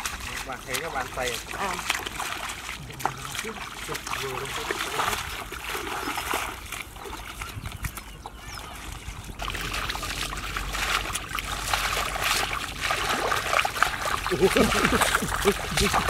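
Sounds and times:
shallow water splashing: 0:00.0 - 0:16.0.

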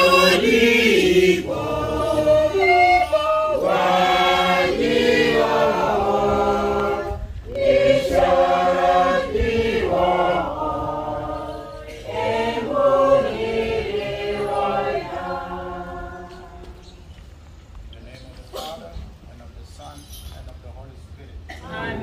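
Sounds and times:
group singing a hymn: 0:00.0 - 0:17.3, 0:21.5 - 0:22.0.

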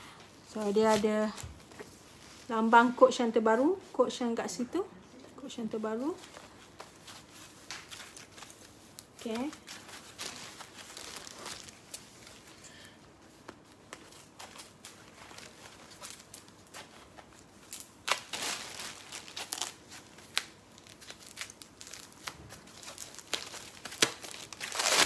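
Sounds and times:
packing wrap crinkling: 0:05.9 - 0:25.0.

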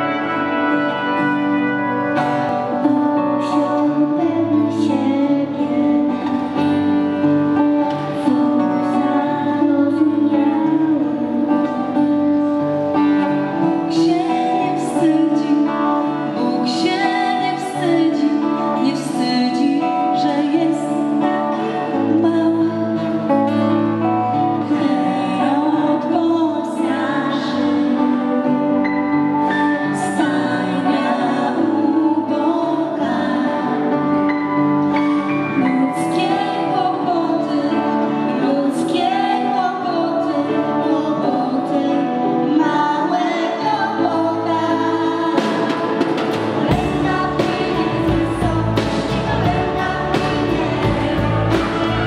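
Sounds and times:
brass and violin ensemble: 0:00.0 - 0:03.9
acoustic guitar: 0:00.0 - 0:52.0
woman singing a carol: 0:02.6 - 0:06.7, 0:08.2 - 0:12.6, 0:13.4 - 0:23.7, 0:24.4 - 0:34.3, 0:35.5 - 0:52.0.

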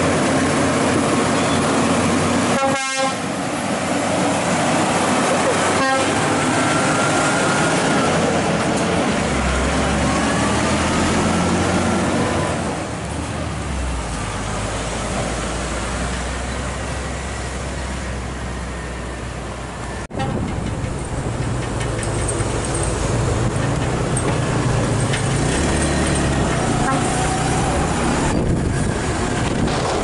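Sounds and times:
heavy truck diesel engine: 0:00.0 - 0:30.0
truck tyres rolling: 0:20.1 - 0:30.0.

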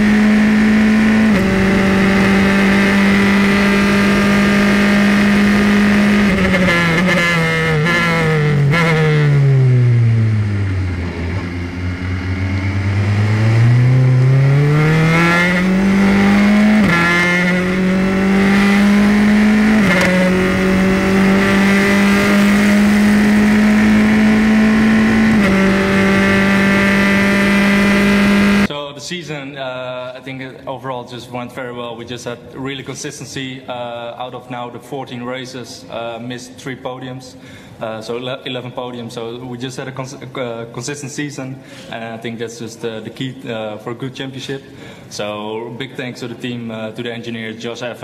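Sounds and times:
race car engine shifting gears: 0:00.0 - 0:28.7.

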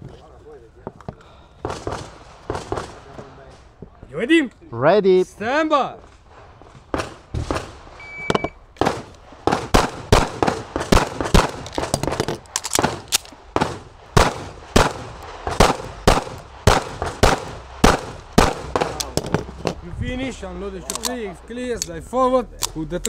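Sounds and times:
pistol shots: 0:06.9 - 0:19.4
shot timer beep: 0:08.0 - 0:08.6.

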